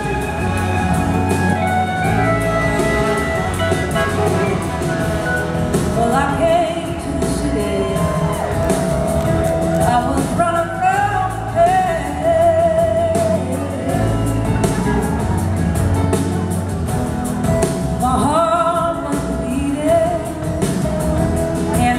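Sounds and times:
blues-rock band playing: 0.0 - 21.9
woman singing: 5.7 - 9.0, 9.7 - 15.0, 18.0 - 21.9.

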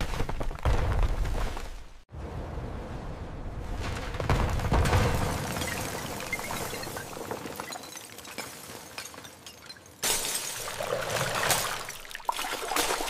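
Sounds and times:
glass bottles crashing and shattering: 5.5 - 12.1.

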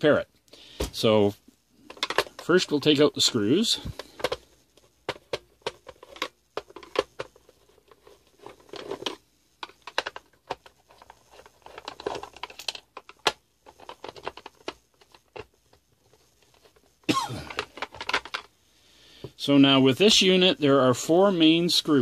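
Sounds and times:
tool scraping plastic case: 3.8 - 18.5.

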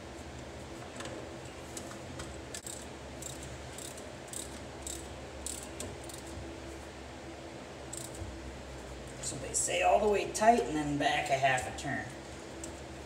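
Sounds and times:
ratchet wrench clicking: 2.6 - 6.2, 7.9 - 8.2.

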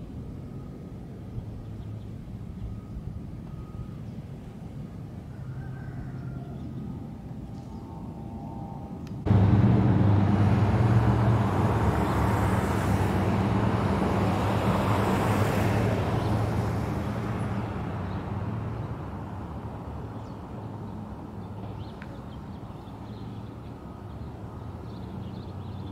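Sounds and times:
vehicle engine running: 9.2 - 19.2.

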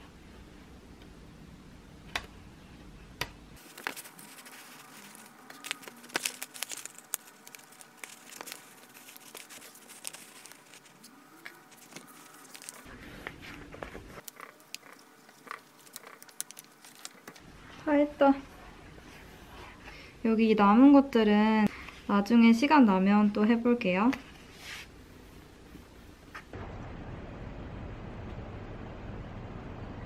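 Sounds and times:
plastic film crinkling: 3.6 - 17.5
small clicks and rustles: 3.6 - 17.5.

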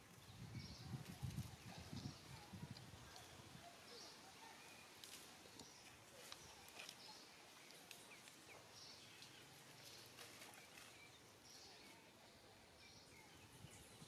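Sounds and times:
dry leaves and twigs crackling: 4.8 - 11.7.

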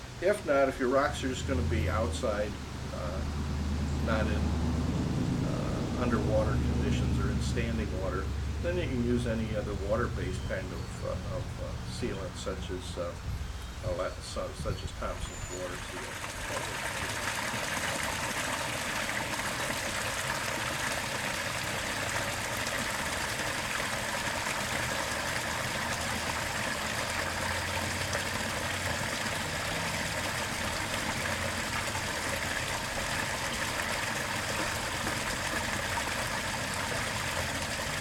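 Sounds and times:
water splashing down waterfall: 15.8 - 38.0.

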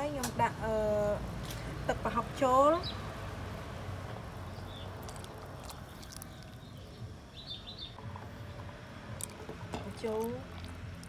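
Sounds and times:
bird chirps: 4.5 - 8.0.

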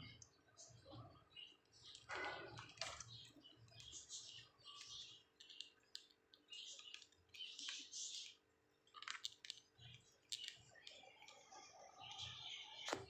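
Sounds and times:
sharp nibbling clicks: 3.0 - 12.4.

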